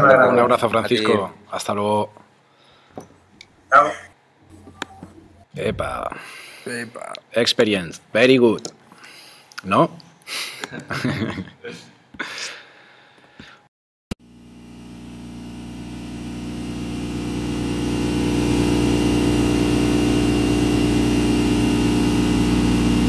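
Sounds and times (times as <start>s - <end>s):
electronic drone: 14.2s - 23.0s.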